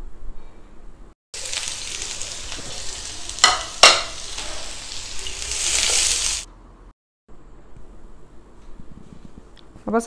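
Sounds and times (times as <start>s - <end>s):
onions sizzling in oil: 1.4s - 6.5s.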